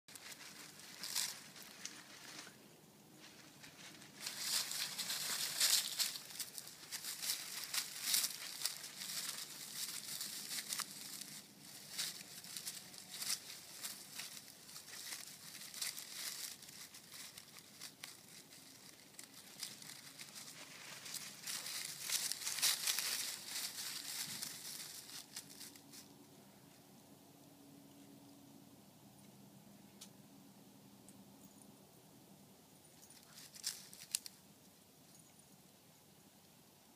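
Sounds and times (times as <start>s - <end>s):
footsteps crunching dry leaves: 0.1s - 2.6s, 3.2s - 26.1s, 33.2s - 34.3s.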